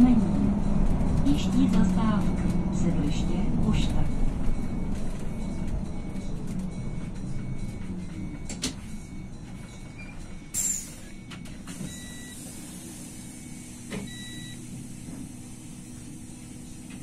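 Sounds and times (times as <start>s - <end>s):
bus engine and road drone: 0.0s - 17.0s
high beeps: 2.0s - 12.4s, 13.2s - 14.6s.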